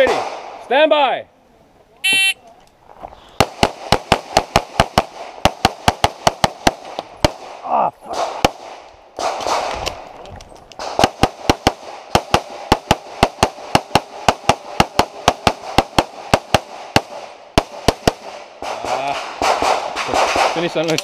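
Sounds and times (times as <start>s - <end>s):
rapid pistol shots: 3.4s - 9.8s, 10.8s - 20.9s.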